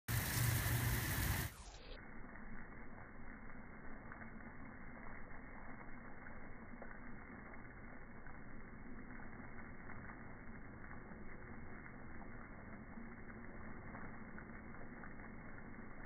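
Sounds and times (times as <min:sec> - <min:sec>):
hose water jet hissing: 0:00.0 - 0:01.9.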